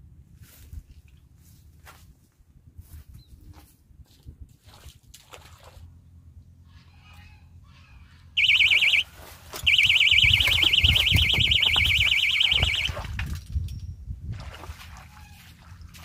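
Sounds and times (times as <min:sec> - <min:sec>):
electronic bite alarm warbling: 0:08.4 - 0:09.1, 0:09.7 - 0:13.1.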